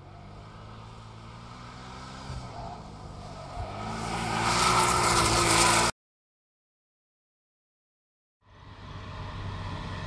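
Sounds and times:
car engine driving by: 0.0 - 5.9.

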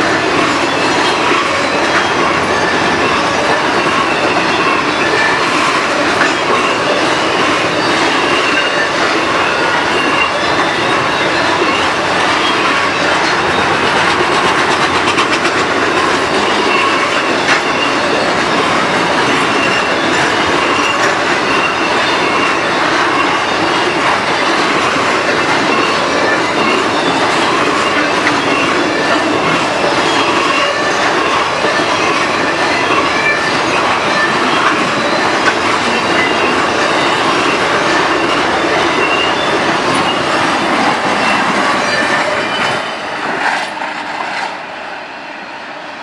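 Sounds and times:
high wheel squeal: 0.0 - 45.8
steel wheels rolling on rail: 0.0 - 46.0.

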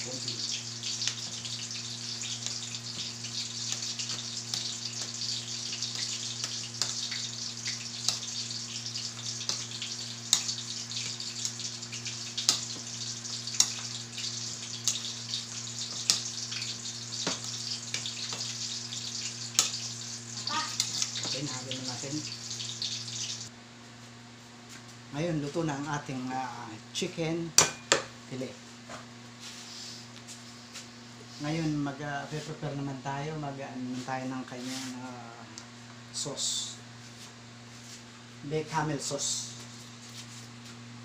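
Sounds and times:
chicken frying in oil: 0.0 - 23.5
low steady hum: 0.0 - 23.5.

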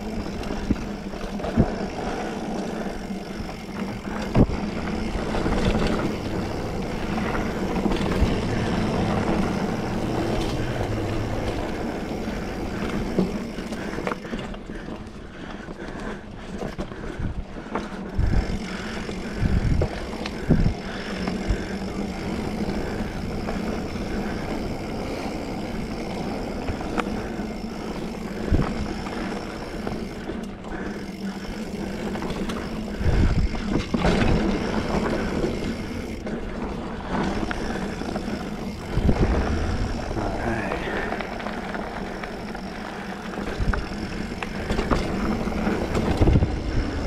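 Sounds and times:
bike tyres rolling on dirt: 0.0 - 47.0
low thumps over bumps: 38.8 - 42.0.

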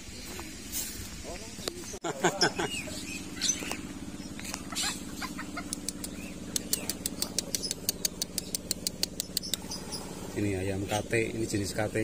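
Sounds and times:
birds chirping: 0.0 - 12.0
steady low hum: 0.0 - 12.0
chickens clucking: 1.6 - 11.6
rapid regular ticking: 5.6 - 9.8.

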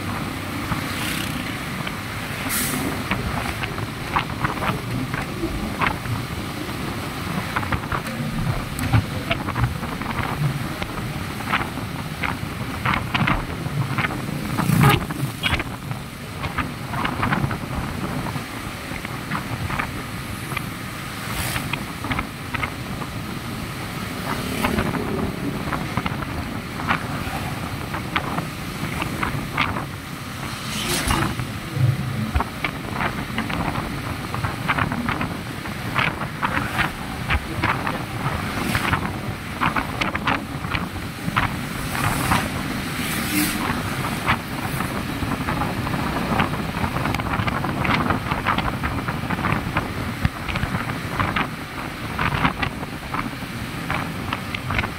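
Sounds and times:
tyres hissing on wet road: 0.0 - 54.9
wind rushing over microphone: 0.0 - 54.9.

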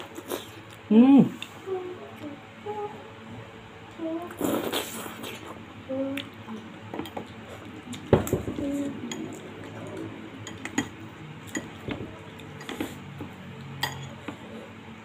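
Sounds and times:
spoon and fork clinking on bowl: 13.8 - 14.3.

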